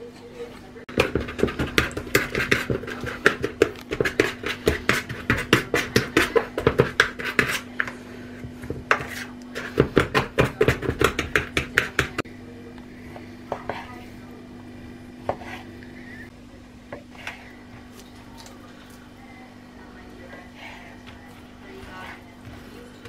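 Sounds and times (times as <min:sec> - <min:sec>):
fork tapping and scraping bowl: 0:00.9 - 0:08.0, 0:08.6 - 0:12.2.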